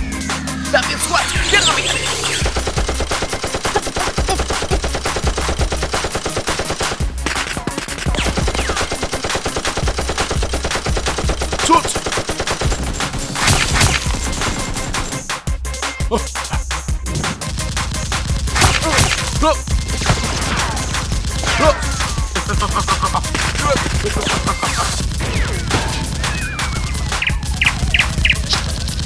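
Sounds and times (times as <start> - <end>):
rapid automatic gunfire: 2.3 - 15.3, 17.1 - 29.0.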